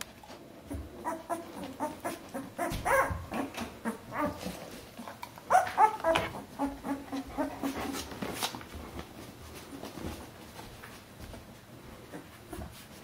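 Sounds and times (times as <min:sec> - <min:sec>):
puppies whimpering and squeaking: 0:00.7 - 0:04.6, 0:05.5 - 0:08.2.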